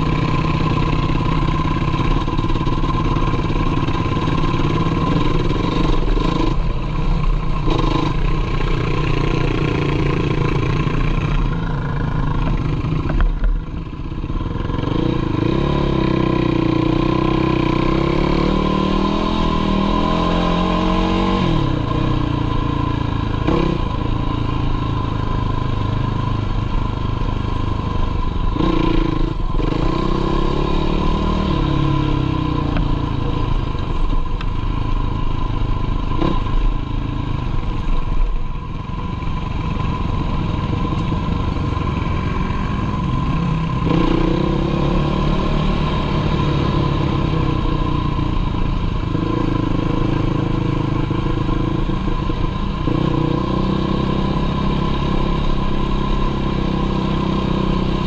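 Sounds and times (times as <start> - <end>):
quad engine revving: 14.4 - 22.1, 40.4 - 48.2.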